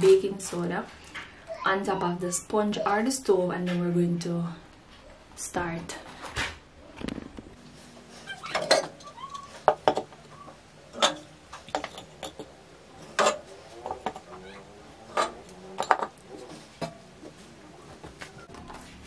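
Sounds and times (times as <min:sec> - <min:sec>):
metal burner caps clinking: 0:08.0 - 0:18.4.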